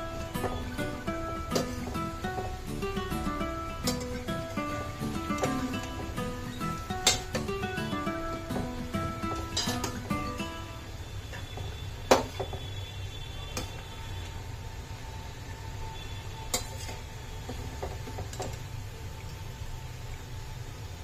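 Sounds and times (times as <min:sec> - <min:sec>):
food deep-frying in oil: 0:00.0 - 0:21.0
metal spoon clinking on pan: 0:07.0 - 0:07.5, 0:09.3 - 0:10.1.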